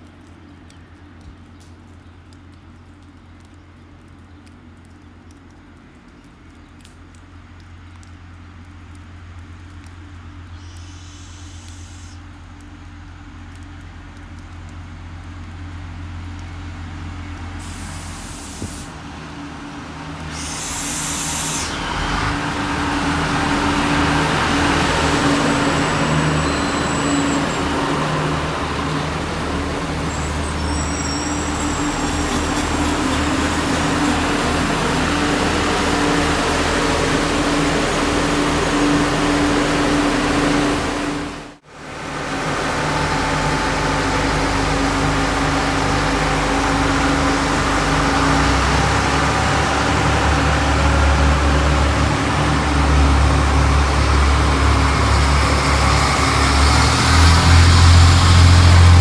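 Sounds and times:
diesel railcar engine hum: 0.0s - 59.0s
railcar running past: 16.0s - 59.0s
high wheel squeal: 20.4s - 22.0s, 25.2s - 28.4s, 29.9s - 34.9s.

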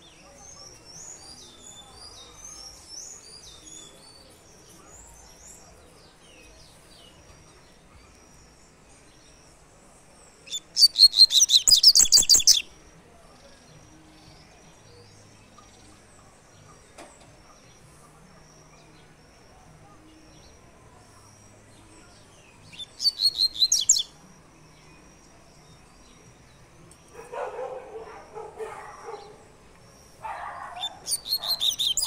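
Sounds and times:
bird singing rapid high notes: 10.5s - 12.7s, 22.7s - 24.1s, 30.8s - 32.0s
faint bird chirps: 17.5s - 25.9s, 27.1s - 32.0s.

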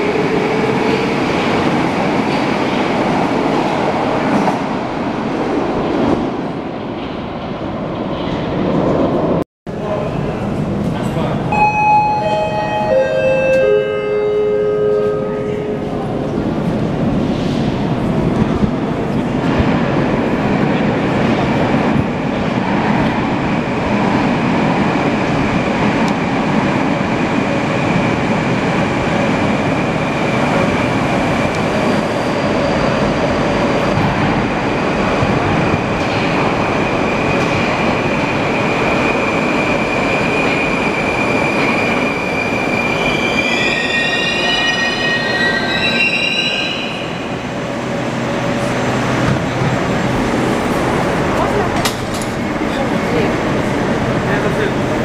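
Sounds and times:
train rumbling: 0.0s - 55.0s.

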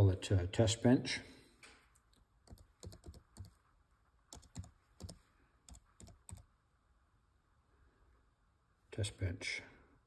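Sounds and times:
laptop keyboard typing: 2.4s - 3.6s, 4.3s - 6.5s.

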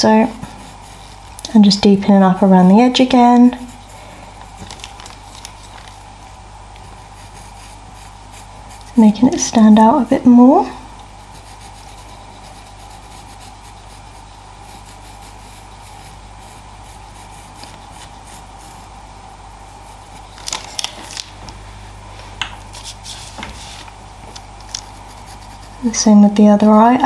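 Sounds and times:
pencil scratching on paper: 0.5s - 1.2s, 7.0s - 9.0s, 11.2s - 18.9s, 24.7s - 25.9s.

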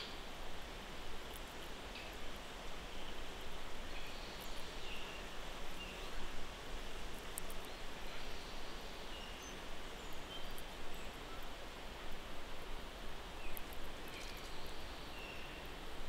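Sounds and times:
steady background hiss: 0.0s - 16.0s
faint clicks: 7.1s - 7.8s, 13.5s - 14.7s.

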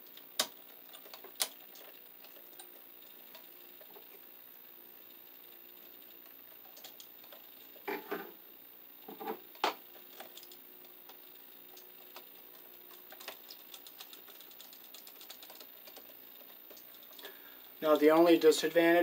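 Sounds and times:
small clicks of wire and metal: 0.1s - 2.7s, 6.7s - 7.4s.

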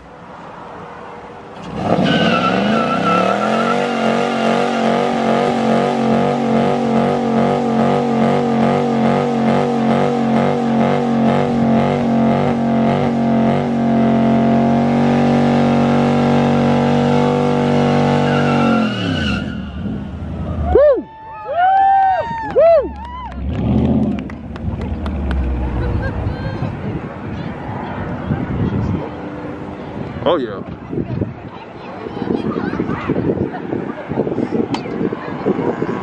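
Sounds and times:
car engine revving high: 1.6s - 20.3s.

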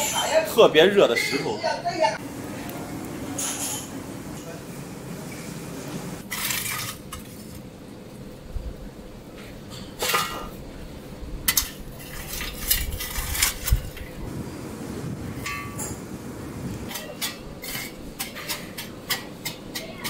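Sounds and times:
fire burning: 2.2s - 9.3s, 10.6s - 19.6s
metal tool scraping metal trays: 16.9s - 19.3s.

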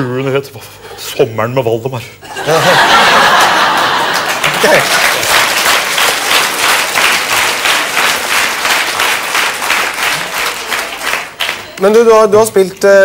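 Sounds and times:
audience applauding: 2.9s - 12.3s.

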